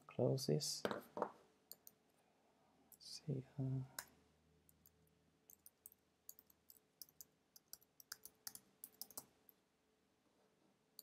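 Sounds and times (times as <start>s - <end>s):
faint keyboard typing: 1.7s - 2.0s, 4.7s - 9.6s.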